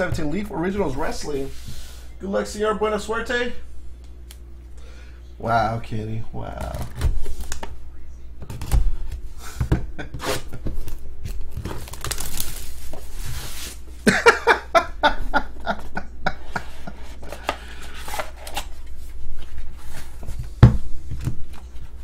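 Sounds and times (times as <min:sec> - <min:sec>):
plastic shrink wrap tearing: 0:10.2 - 0:13.0.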